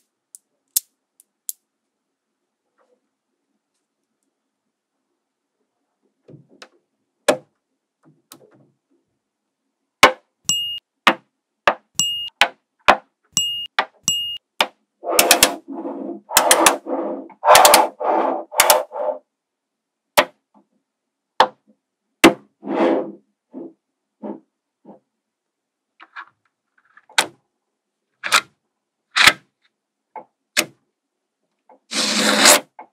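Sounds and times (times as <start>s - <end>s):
magnet balls clicking together: 0.0s - 1.7s.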